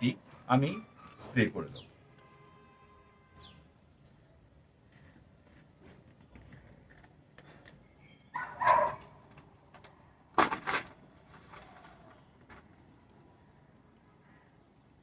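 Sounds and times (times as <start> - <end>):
dog barking: 8.4 - 9.1.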